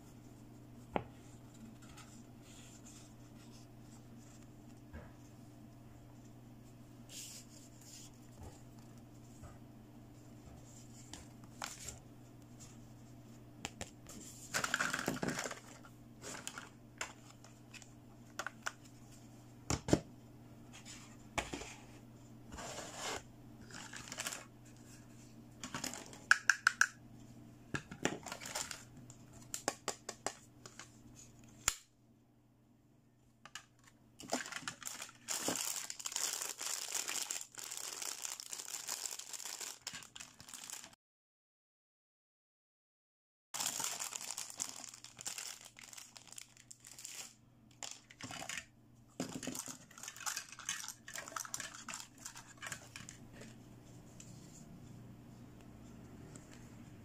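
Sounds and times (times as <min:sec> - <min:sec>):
faint steady hum: 0:00.0 - 0:39.3, 0:43.6 - 0:57.0
plastic bag crinkling: 0:14.6 - 0:17.4, 0:23.6 - 0:24.5, 0:28.2 - 0:28.9, 0:34.2 - 0:41.0, 0:43.6 - 0:48.6, 0:49.2 - 0:53.3.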